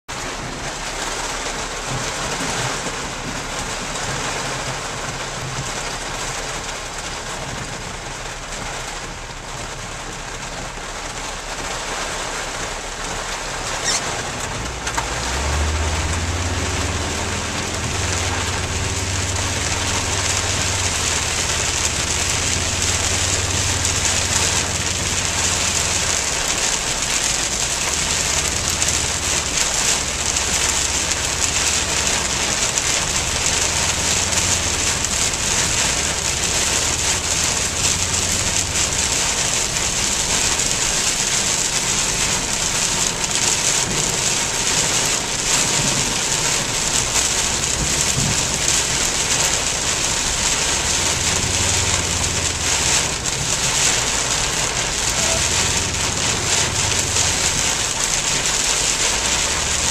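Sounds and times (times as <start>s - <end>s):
heavy rain on a car: 0.0s - 59.9s
low car engine drone: 0.0s - 59.9s
tyre spray hissing: 14.6s - 43.2s, 43.8s - 59.9s.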